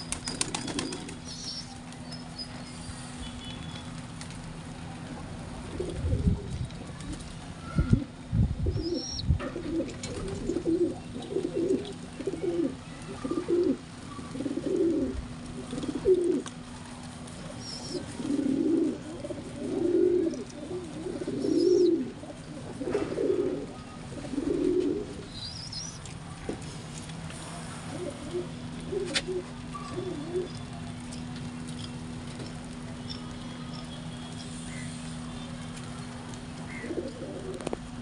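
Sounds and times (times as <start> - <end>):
pigeons cooing: 7.6 - 16.5, 17.4 - 26.0, 27.8 - 30.7, 36.6 - 37.8.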